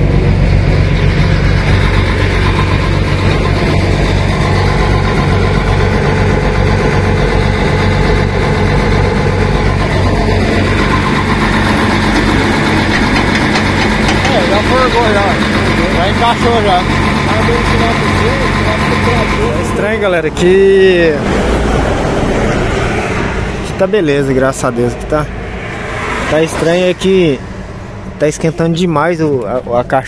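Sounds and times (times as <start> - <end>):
diesel truck engine idling: 0.0 - 30.0.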